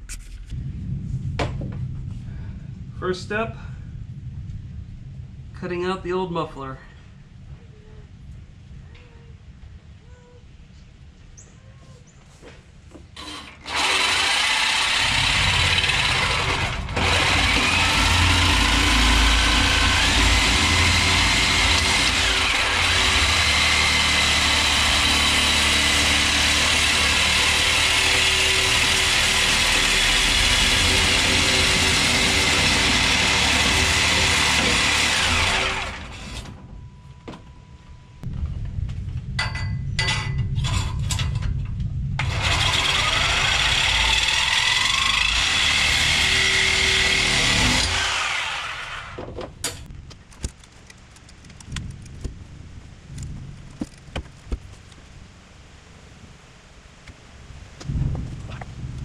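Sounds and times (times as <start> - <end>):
reciprocating saw cutting metal: 13.2 - 36.6, 42.2 - 49.2.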